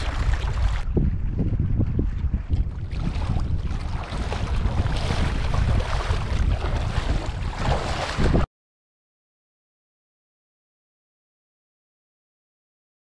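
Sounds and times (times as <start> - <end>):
sea waves: 0.0 - 1.4, 2.0 - 8.5
wind buffeting microphone: 0.0 - 8.5.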